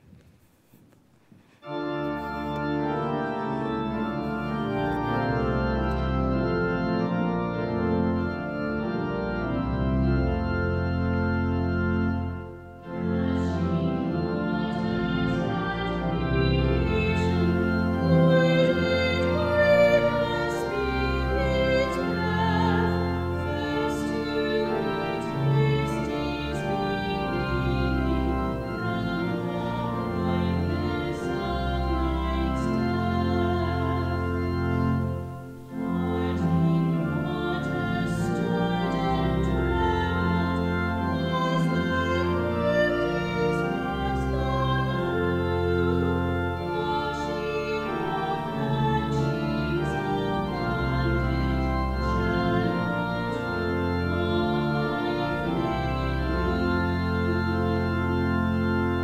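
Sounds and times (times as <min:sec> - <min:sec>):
organ playing chords: 0:01.5 - 0:59.0
voices singing a hymn: 0:13.3 - 0:59.0.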